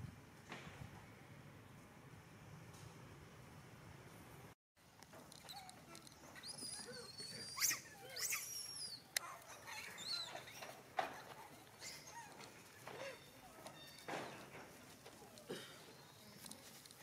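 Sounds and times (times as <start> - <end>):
monkeys squeaking and squealing: 5.4 - 14.6.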